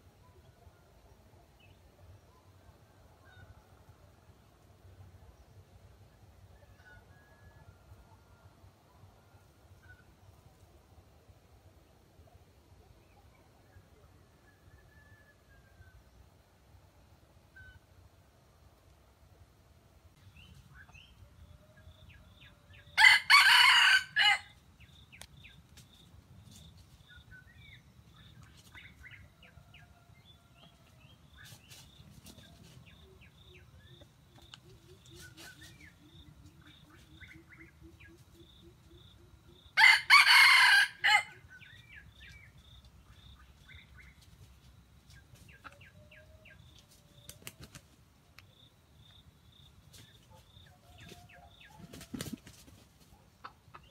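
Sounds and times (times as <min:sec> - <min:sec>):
rooster crowing: 0:23.0 - 0:24.5, 0:39.8 - 0:41.4.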